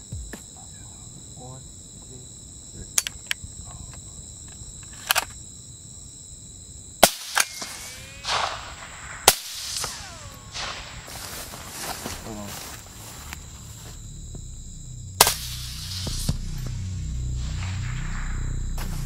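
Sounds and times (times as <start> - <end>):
crickets chirping: 0.0 - 19.0
suppressed rifle shots: 7.0 - 11.8, 15.2 - 16.4.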